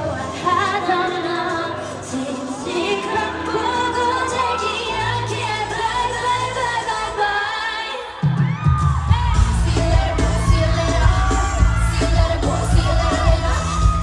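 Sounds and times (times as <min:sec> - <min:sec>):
woman singing pop song: 0:00.0 - 0:14.0
heavy bass beat: 0:08.5 - 0:14.0.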